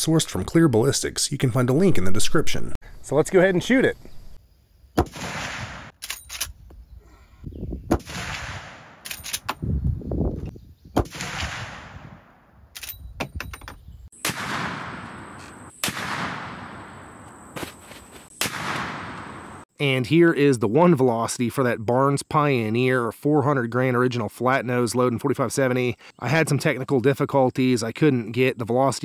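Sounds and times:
rifle shots with echo: 5.0 - 6.0, 7.9 - 9.2, 11.0 - 12.4, 14.2 - 17.1, 18.4 - 19.6
rifle action clicks: 6.0 - 6.6, 9.0 - 9.6, 12.7 - 13.1.

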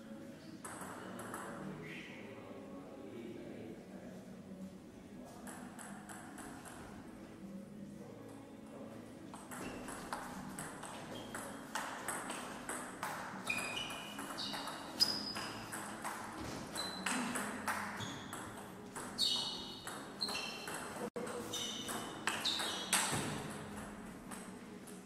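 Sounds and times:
short high squeaks: 13.4 - 15.6, 19.2 - 20.9, 21.5 - 23.1.

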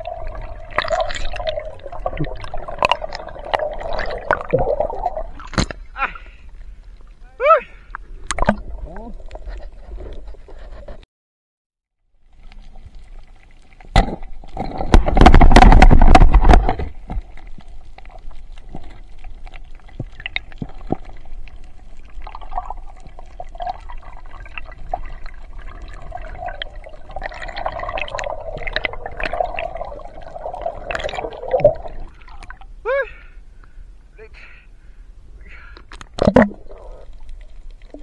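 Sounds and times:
loud rush of bubbles: 0.0 - 5.6, 22.1 - 32.6, 36.2 - 37.3
underwater bubbling: 0.0 - 10.7, 12.2 - 32.8, 35.9 - 38.0.

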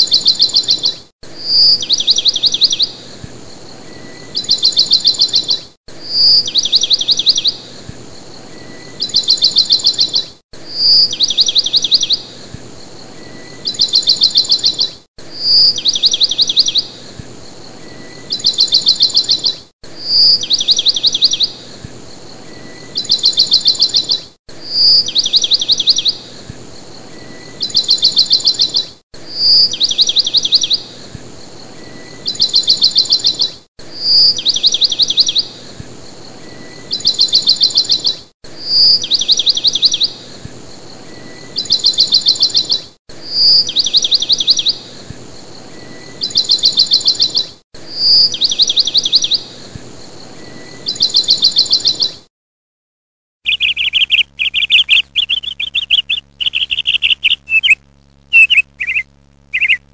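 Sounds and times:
bird call with high trill: 0.0 - 2.9, 4.0 - 7.6, 8.5 - 12.2, 13.2 - 16.9, 17.9 - 21.5, 22.5 - 26.2, 27.2 - 30.8, 31.8 - 35.5, 36.5 - 40.2, 41.2 - 44.8, 45.8 - 49.5, 50.5 - 52.2, 53.5 - 59.9.

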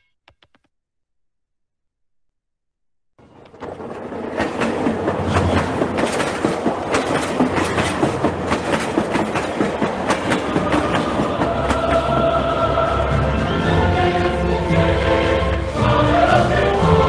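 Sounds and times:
dense rattling and clattering: 3.5 - 11.8.

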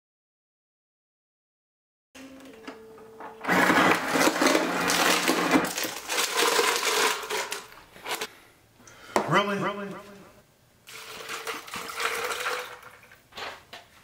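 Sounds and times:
ice dispenser motor hum: 2.2 - 8.3, 10.9 - 13.2
ice clattering into plastic cup: 3.5 - 8.3, 10.9 - 13.6.

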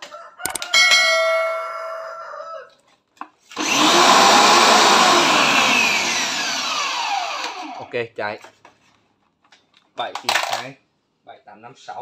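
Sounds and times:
pressure washer motor whining: 3.5 - 7.9.

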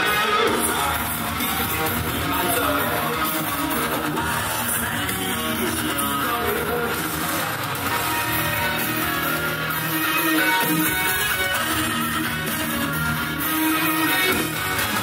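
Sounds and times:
music with strummed guitar: 0.0 - 15.0.

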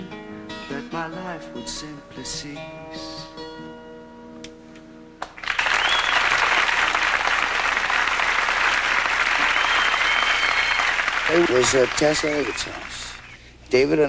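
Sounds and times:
acoustic guitar: 0.0 - 5.2
audience applause: 5.3 - 13.3.

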